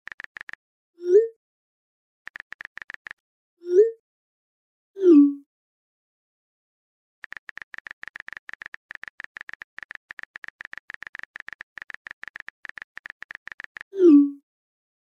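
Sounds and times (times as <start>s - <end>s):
touchscreen keyboard taps: 0.0s - 0.6s, 2.3s - 3.2s, 7.2s - 14.0s.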